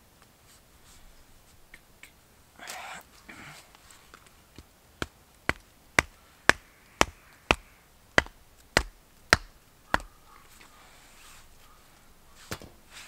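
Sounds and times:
wooden baton knocking stake: 0:05.0 - 0:10.1.

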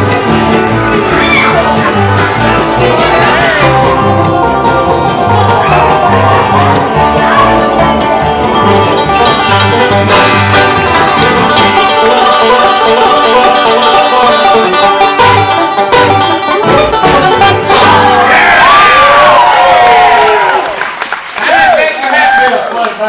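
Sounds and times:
acoustic guitar picking: 0:00.0 - 0:18.3
bass beat: 0:00.0 - 0:18.4
banjo picking: 0:00.0 - 0:19.2
bluegrass band playing: 0:00.0 - 0:20.4.

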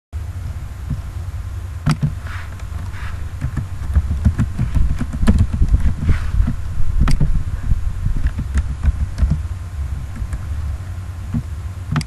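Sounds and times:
steady low hum: 0:00.2 - 0:12.0
sharp click: 0:01.8 - 0:07.3, 0:11.3 - 0:12.0.

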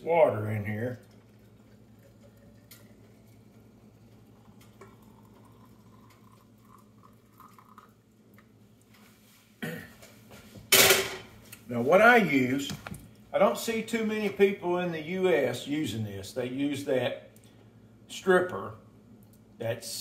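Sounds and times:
water pouring into glass jar: 0:00.3 - 0:08.4.

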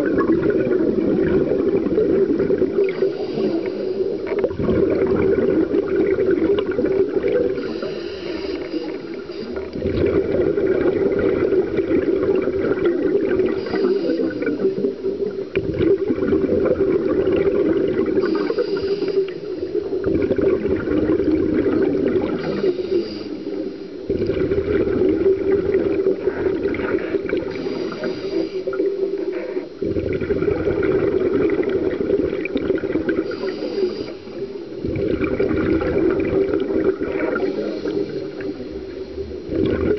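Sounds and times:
bubbling exhalations: 0:00.0 - 0:23.2, 0:24.1 - 0:39.9
scuba regulator inhalation hiss: 0:02.8 - 0:04.4, 0:07.5 - 0:09.8, 0:13.4 - 0:14.9, 0:18.2 - 0:20.0, 0:22.2 - 0:24.1, 0:26.3 - 0:29.8, 0:33.1 - 0:34.9, 0:37.1 - 0:39.2.

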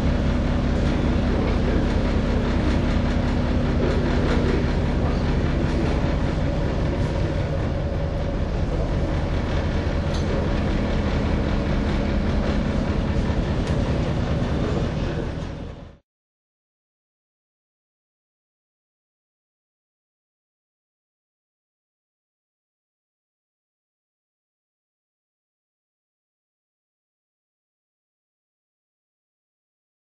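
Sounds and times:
sea noise: 0:00.0 - 0:15.9
ship engines droning: 0:00.0 - 0:16.0.

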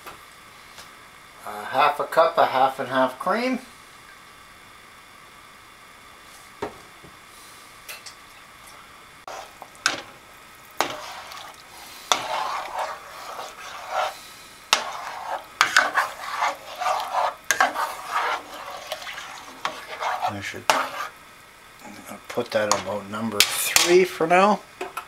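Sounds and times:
spoon stirring soup in metal pot: 0:09.3 - 0:21.2, 0:22.3 - 0:24.0.

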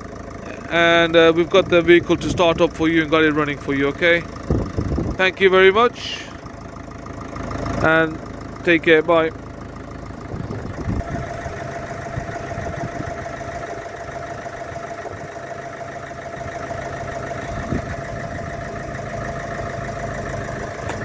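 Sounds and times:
van engine idling: 0:00.0 - 0:21.0
steady whine: 0:10.2 - 0:21.0.

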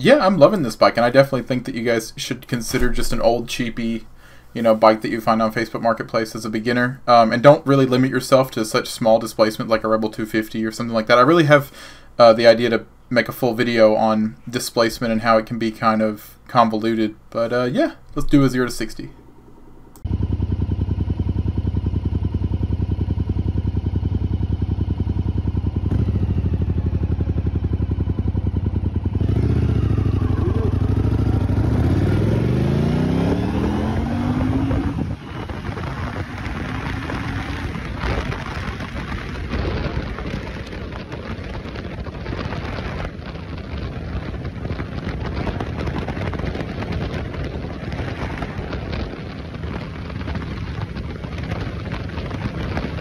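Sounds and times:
motorcycle engine revving: 0:20.0 - 0:53.0
wind on microphone: 0:29.3 - 0:53.0.

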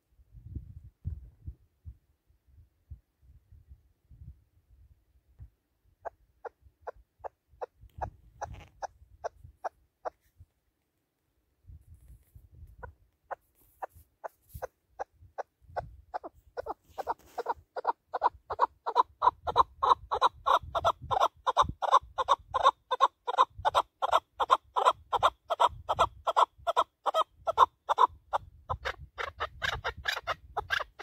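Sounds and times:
partridge sharp clucks: 0:06.0 - 0:10.2, 0:12.6 - 0:31.0.

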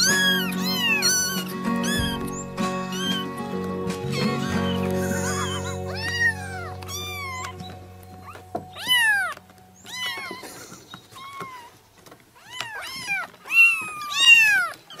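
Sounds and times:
kitten meowing: 0:00.0 - 0:03.4, 0:04.0 - 0:10.5, 0:11.2 - 0:11.7, 0:12.4 - 0:15.0
background music: 0:00.0 - 0:10.3.

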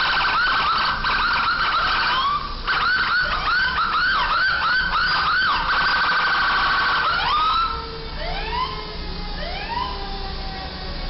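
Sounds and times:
emergency siren yelping and wailing: 0:00.0 - 0:11.0
traffic engine rumble: 0:00.0 - 0:11.0.

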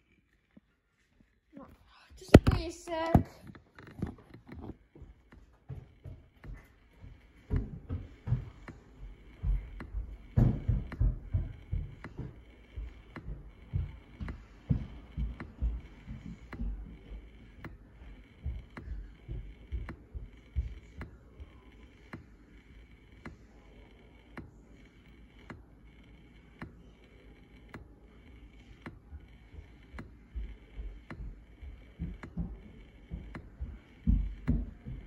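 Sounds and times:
low irregular thumps and knocks: 0:02.2 - 0:21.6, 0:29.6 - 0:35.0.

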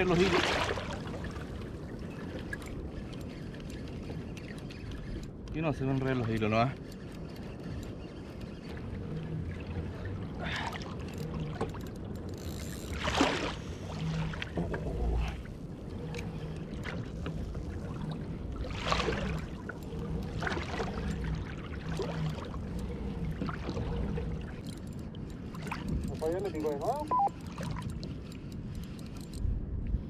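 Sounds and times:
water splashing: 0:00.0 - 0:01.6, 0:12.9 - 0:24.7
water lapping against kayak hull: 0:00.0 - 0:30.0.

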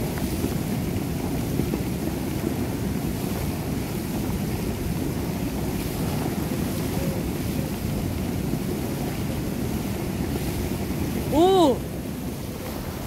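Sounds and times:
seawater churning in shallows: 0:00.0 - 0:13.0
wind buffeting microphone: 0:00.0 - 0:13.0.

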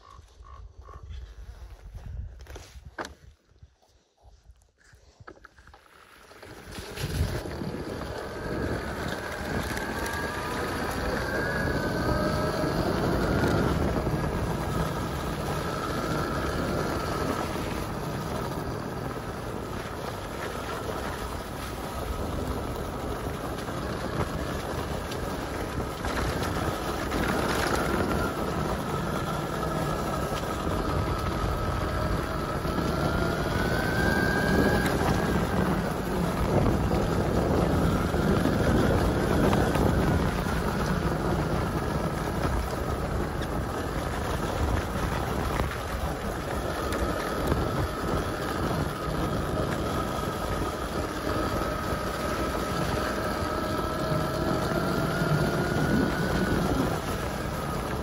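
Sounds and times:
wind buffeting microphone: 0:00.0 - 0:05.7, 0:06.4 - 0:58.0
tyres rolling on wet dirt road: 0:05.6 - 0:58.0.

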